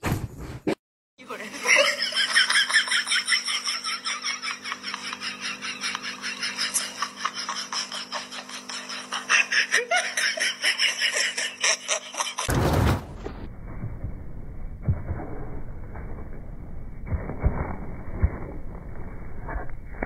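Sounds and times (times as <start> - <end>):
steady low hum: 12.8 - 20.0.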